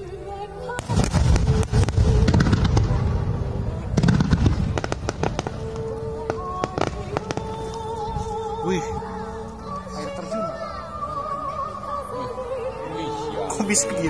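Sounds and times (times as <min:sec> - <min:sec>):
background music: 0:00.0 - 0:14.0
fireworks bursting and crackling: 0:00.7 - 0:08.2.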